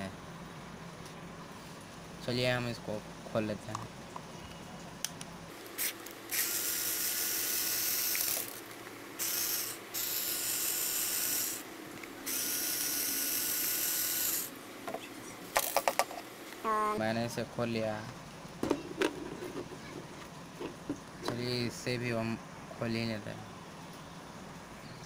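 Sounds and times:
cordless screwdriver whirring: 0:05.8 - 0:08.6, 0:09.2 - 0:11.6, 0:12.3 - 0:14.5.

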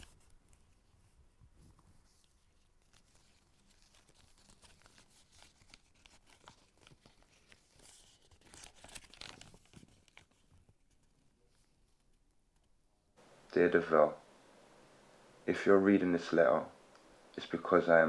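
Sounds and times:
paper and cardboard rustling: 0:00.0 - 0:12.3
paper tearing and crinkling: 0:02.5 - 0:10.6.

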